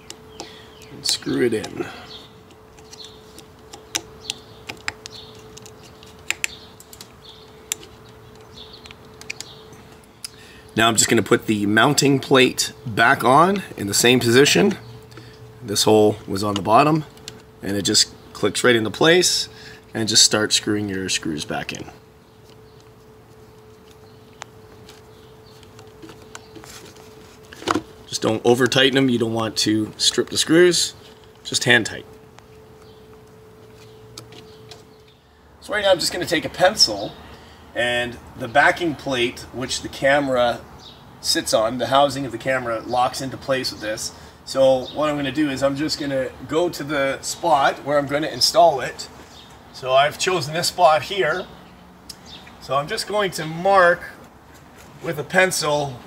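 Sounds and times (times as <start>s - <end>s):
screwdriver ticking and scraping: 0.0s - 10.0s
faint steady hum: 0.0s - 56.0s.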